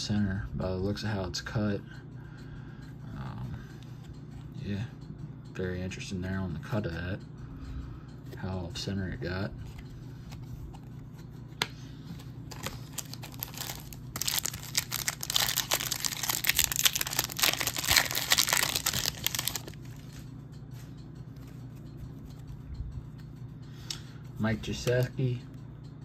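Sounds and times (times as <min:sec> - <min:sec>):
foil wrapper tearing and crinkling: 0:12.5 - 0:20.0.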